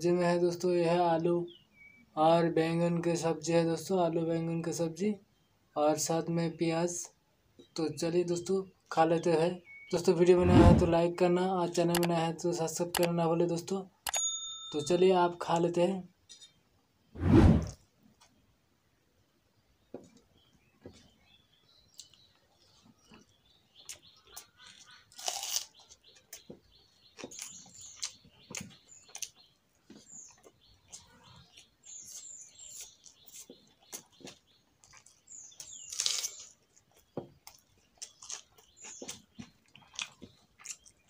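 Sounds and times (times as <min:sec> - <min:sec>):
chewing and lip smacks: 0:21.9 - 0:26.5, 0:27.1 - 0:29.5, 0:30.3 - 0:41.0.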